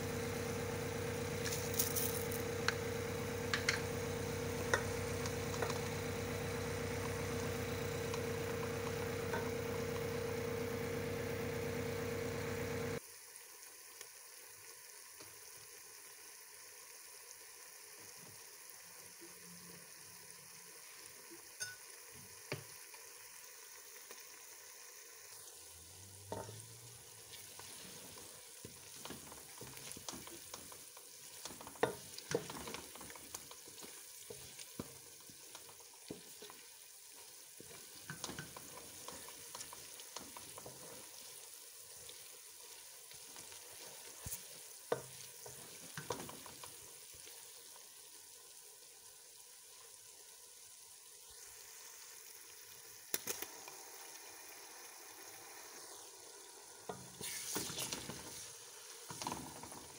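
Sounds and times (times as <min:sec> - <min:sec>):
machine-like hum: 0:00.0 - 0:13.0
onions sizzling in oil: 0:00.0 - 0:59.9.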